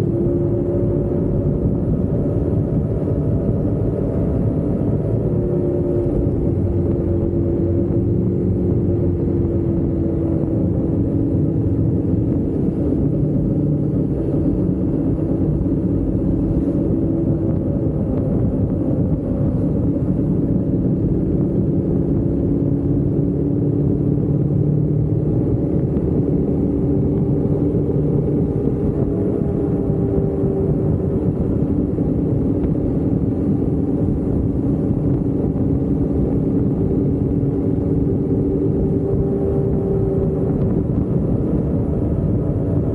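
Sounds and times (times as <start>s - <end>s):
motorcycle engine running: 0.0s - 42.9s
wind and road noise: 0.0s - 42.9s.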